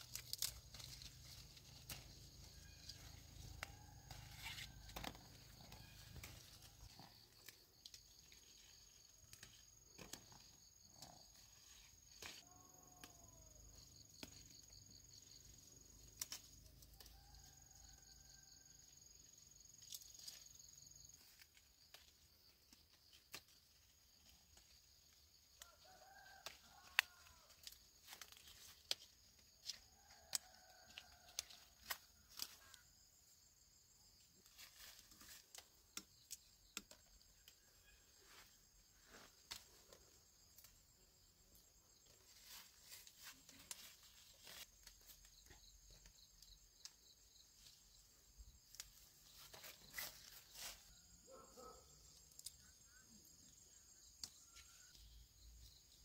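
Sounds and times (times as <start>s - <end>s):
leaves and branches rustling: 0.0s - 12.4s, 19.0s - 32.9s, 34.3s - 41.0s, 42.0s - 46.1s, 46.8s - 51.2s
insects droning: 0.0s - 56.0s.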